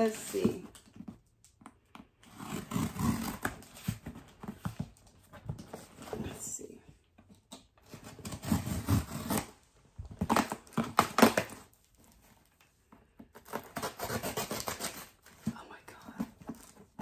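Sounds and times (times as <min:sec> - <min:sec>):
packing tape ripping: 0:07.9 - 0:09.6, 0:10.2 - 0:11.8.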